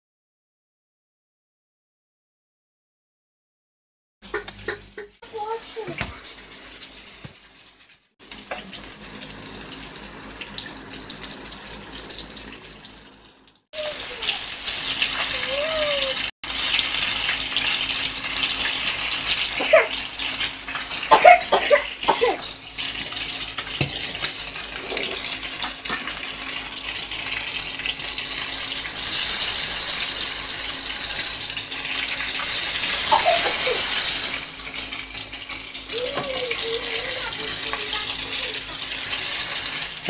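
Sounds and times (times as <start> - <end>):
oil sizzling around frying fish: 4.2 - 40.0
spoon working at fish: 23.0 - 26.1.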